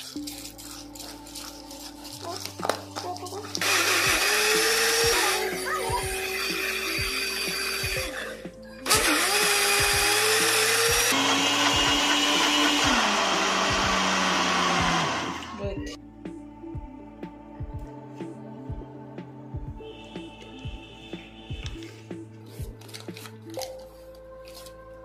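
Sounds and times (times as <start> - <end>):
mixer grinder running: 3.5 - 15.6.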